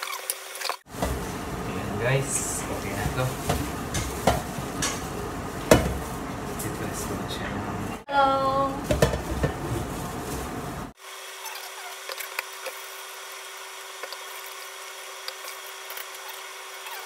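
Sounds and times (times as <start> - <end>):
steady hum: 0.9 - 11.0.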